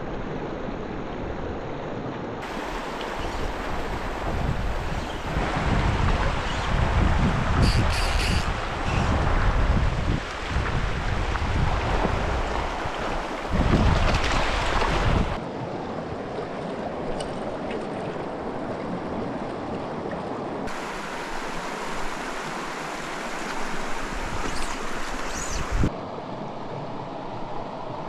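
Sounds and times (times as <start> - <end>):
stream rushing over stones: 2.4 - 15.4, 20.6 - 25.9
wind buffeting microphone: 2.4 - 19.9, 20.6 - 28.0.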